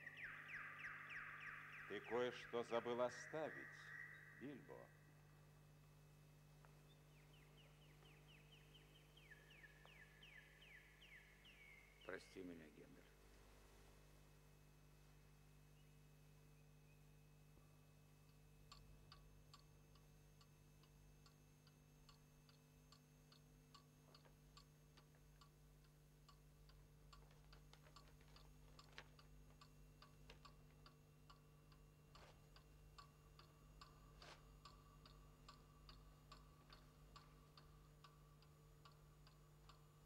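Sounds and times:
low steady hum: 0:00.0 - 0:40.0
faint clock ticking: 0:17.0 - 0:40.0.

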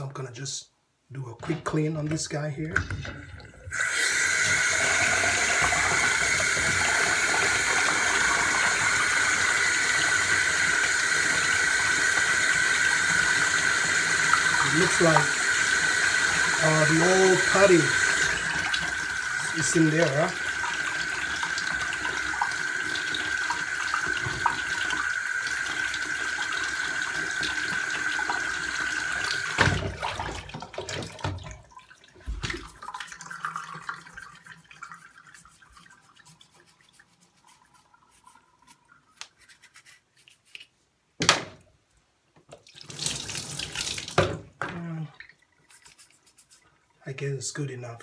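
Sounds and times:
tap water running into tub: 0:01.7 - 0:39.4, 0:42.4 - 0:47.0
brush scrubbing drain: 0:05.6 - 0:24.5, 0:32.2 - 0:40.7, 0:45.5 - 0:46.9.

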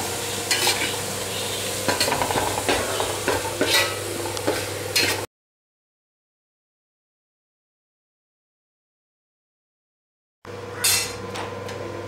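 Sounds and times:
onions sizzling in pan: 0:00.0 - 0:05.3
spatula stirring and scraping: 0:00.5 - 0:05.3.

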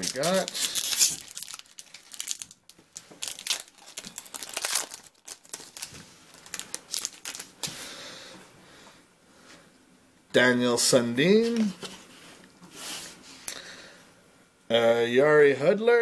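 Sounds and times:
wrapper crinkling and rustling: 0:00.0 - 0:07.8.

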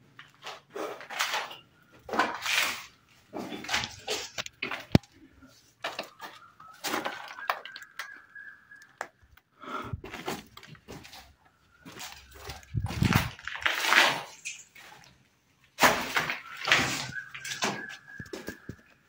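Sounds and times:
footsteps on gritty floor: 0:10.0 - 0:15.1, 0:15.8 - 0:19.0.

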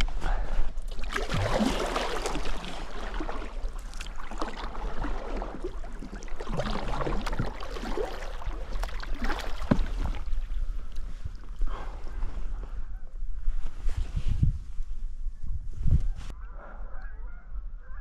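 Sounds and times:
water splashes and drips: 0:00.8 - 0:11.5
kayak paddle dipping in water: 0:00.8 - 0:11.8.

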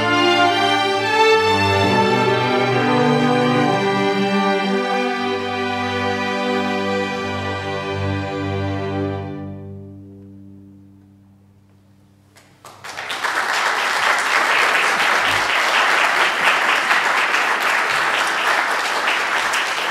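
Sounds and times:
orchestra chord: 0:00.0 - 0:12.3
audience applause: 0:12.4 - 0:19.9.

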